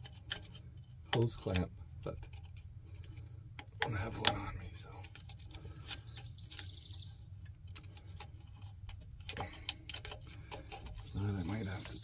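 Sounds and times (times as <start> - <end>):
clicks and taps on metal fittings: 0.0 - 12.0
small bird chirping trill: 0.8 - 4.6, 5.7 - 8.6, 10.2 - 12.0.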